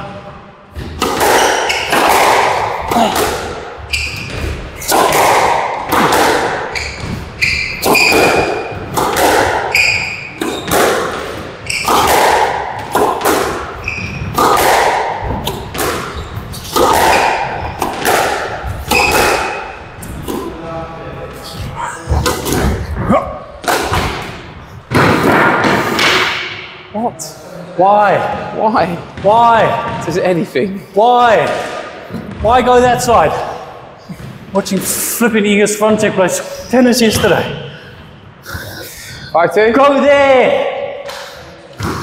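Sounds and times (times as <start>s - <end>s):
squash ball hitting rackets: 0.8s - 20.6s, 23.6s - 26.8s
shoes squeaking on floor: 1.3s - 2.0s, 3.8s - 4.8s, 6.7s - 8.8s, 9.6s - 12.2s, 13.7s - 14.5s, 15.4s - 17.9s, 18.8s - 20.2s.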